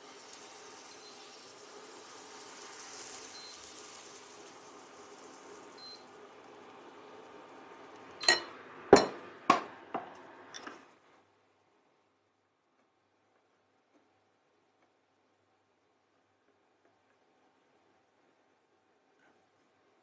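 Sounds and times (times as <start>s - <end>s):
faint steady hiss: 0.0s - 20.0s
utensils clinking on cookware: 8.2s - 9.2s.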